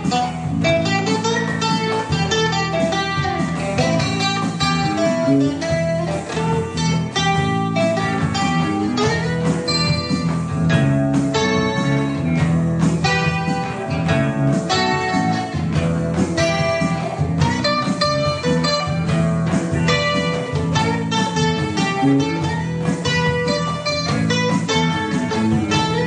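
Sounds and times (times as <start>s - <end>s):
plucked guitar music: 0.0s - 26.0s.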